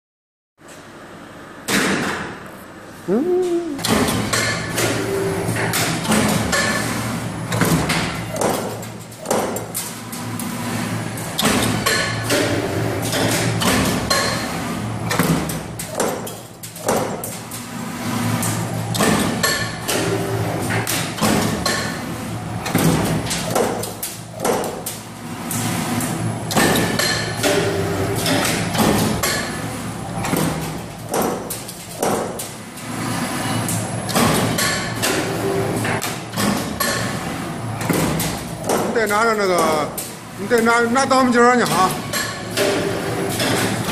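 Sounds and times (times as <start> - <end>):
low machine hum: 2.8 - 4.4.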